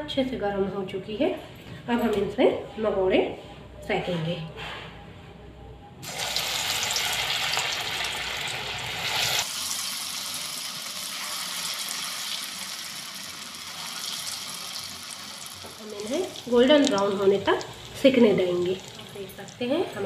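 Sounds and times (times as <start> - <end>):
batter sizzling in hot oil: 6.0 - 20.0.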